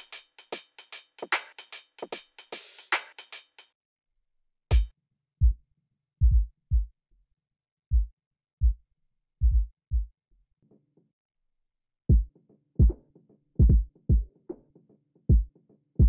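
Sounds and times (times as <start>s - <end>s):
deep kick drum thumps: 4.7s - 5.6s, 6.2s - 6.9s, 7.9s - 8.8s, 9.4s - 10.1s, 12.1s - 13.0s, 13.6s - 14.3s, 15.3s - 15.5s.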